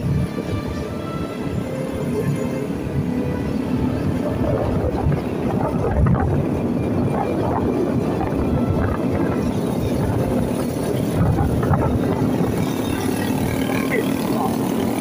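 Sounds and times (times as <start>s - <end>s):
road noise: 0.0s - 15.0s
motorcycle engine running: 10.4s - 15.0s.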